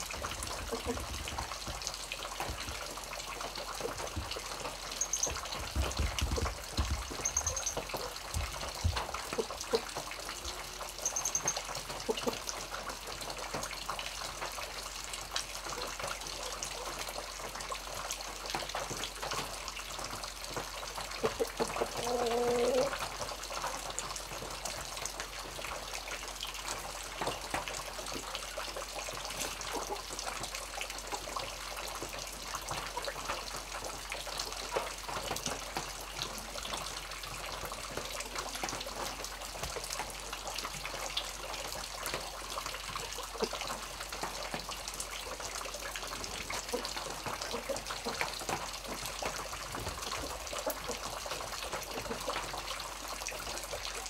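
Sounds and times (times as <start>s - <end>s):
stream water rushing: 0.0s - 15.0s
rain drops splashing: 0.0s - 54.0s.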